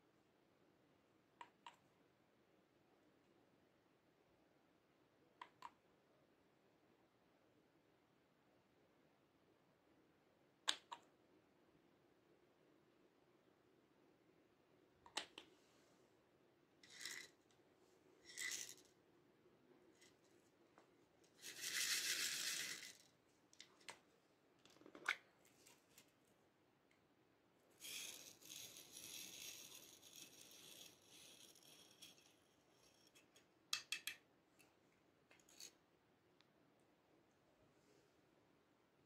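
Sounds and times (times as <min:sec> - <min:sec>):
plastic beads rattling: 0:16.8 - 0:17.4, 0:18.2 - 0:19.0, 0:21.2 - 0:23.2, 0:27.8 - 0:33.3.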